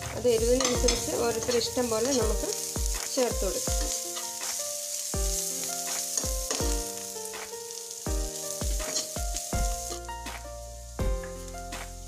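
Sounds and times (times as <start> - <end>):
background music with low beat: 0.0 - 12.0
food sizzling in oil: 0.0 - 12.0
spoon stirring in pan: 0.6 - 6.8, 8.8 - 9.2.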